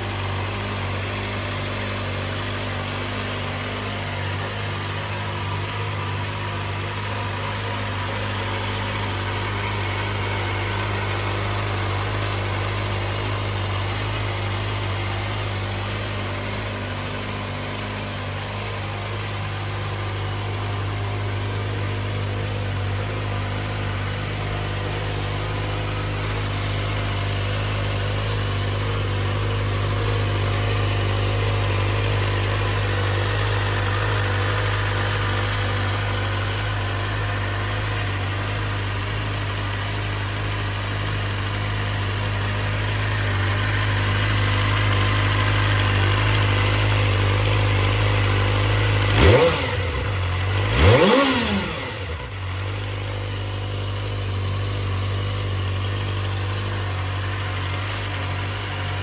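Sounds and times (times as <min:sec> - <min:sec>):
motorcycle engine idling: 0:00.0 - 0:59.0
engine revving in throttle blips: 0:43.8 - 0:53.0.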